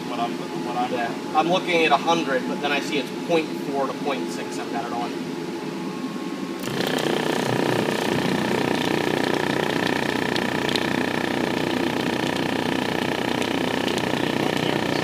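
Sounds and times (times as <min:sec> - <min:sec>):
subwoofer buzzing low tone: 0:06.6 - 0:15.0.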